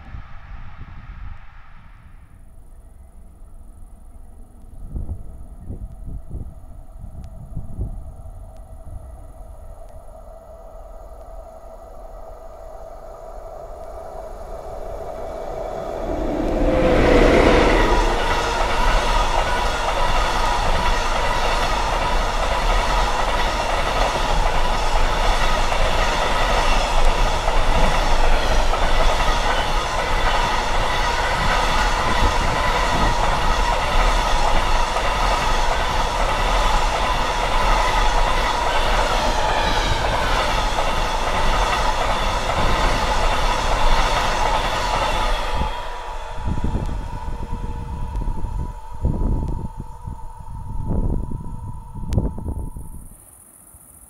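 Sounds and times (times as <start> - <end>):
high ringing whine: 10.1 - 21.1, 45.7 - 54.0.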